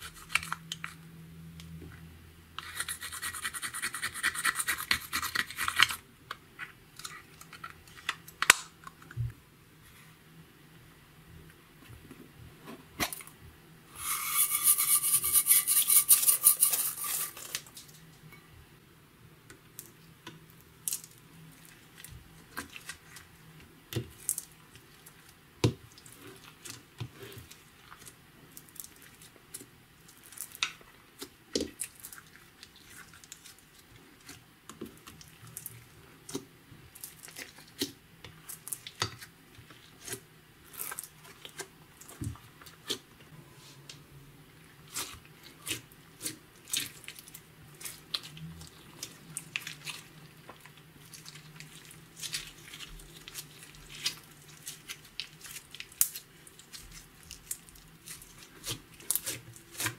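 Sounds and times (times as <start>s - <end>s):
slime being stirred and pressed: 44.8s - 59.9s.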